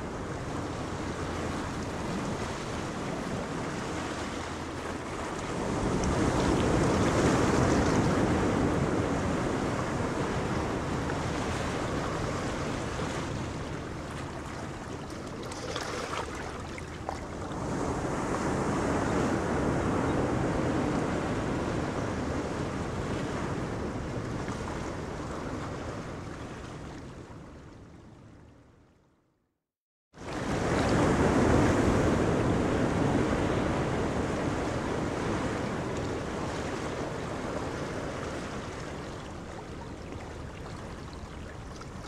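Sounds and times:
rushing water: 0:00.0 - 0:18.5, 0:33.6 - 0:42.0
wind buffeting microphone: 0:00.0 - 0:27.5
boat wake washing: 0:00.0 - 0:28.2, 0:30.2 - 0:42.0.

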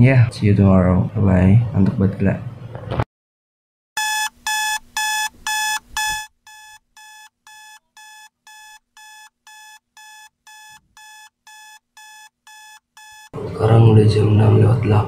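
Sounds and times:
high-pitched electronic alarm beeps: 0:04.0 - 0:13.4.

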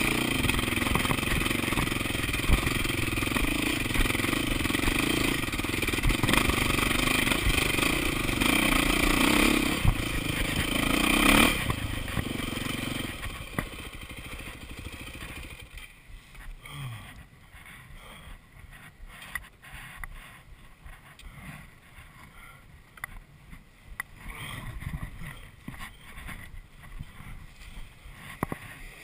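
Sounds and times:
motorcycle engine revving: 0:00.0 - 0:15.9
faint clicks and rustles: 0:15.1 - 0:29.0.

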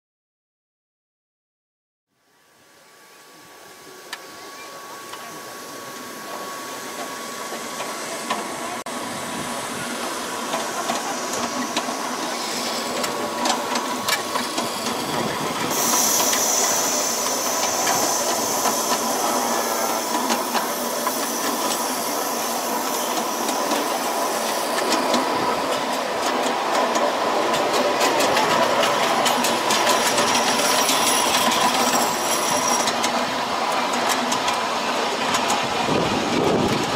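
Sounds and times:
steam hissing: 0:02.8 - 0:36.9
sharp high hiss: 0:09.4 - 0:25.3
wheels clicking on rails: 0:09.9 - 0:36.9.

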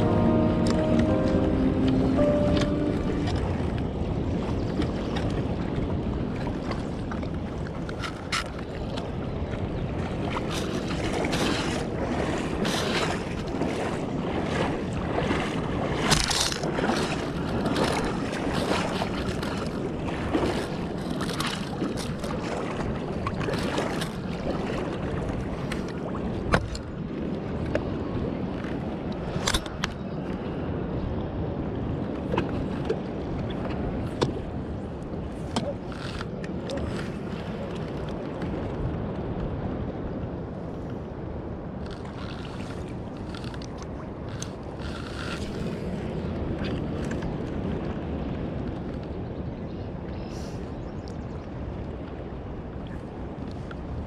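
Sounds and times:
river water rushing: 0:00.0 - 0:04.5
wind buffeting microphone: 0:00.0 - 0:54.0.

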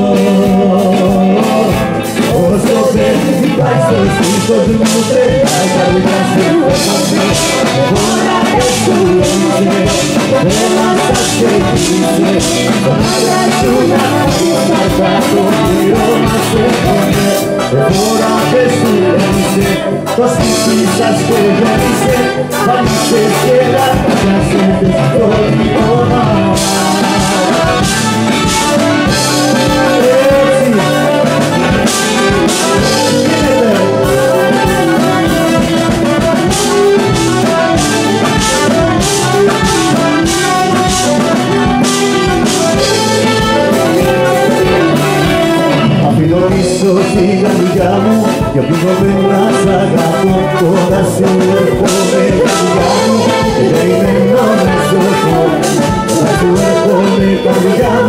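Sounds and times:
brass band with drums: 0:00.0 - 0:58.0
person singing: 0:00.0 - 0:58.0.

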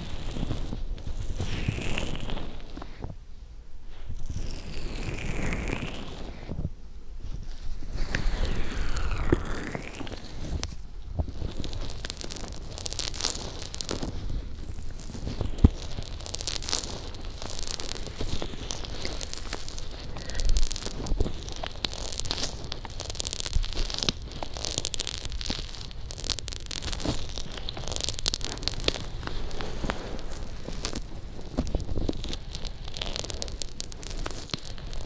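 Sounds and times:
fingers rubbing lotion on microphone: 0:00.0 - 0:03.2, 0:04.2 - 0:06.7, 0:07.3 - 0:35.0
small sticky clicks: 0:08.1 - 0:35.0.

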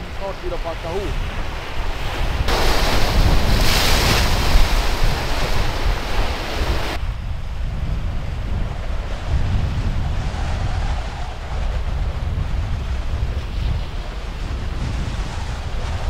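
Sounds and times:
sea waves breaking: 0:00.0 - 0:07.0
wind rumbling on microphone: 0:00.0 - 0:16.0.

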